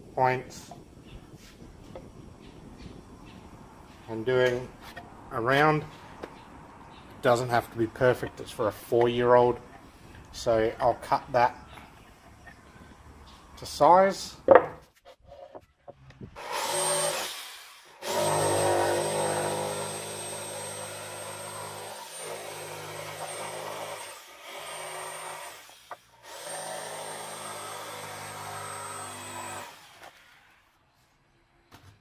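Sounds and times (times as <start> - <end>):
jigsaw cutting wood: 16.4 - 30.6.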